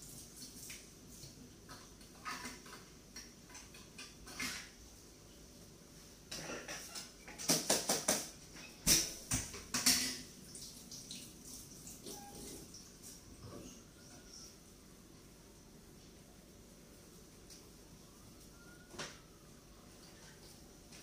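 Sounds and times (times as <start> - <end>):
plates and cutlery clinking: 1.7 - 4.8, 6.3 - 10.3.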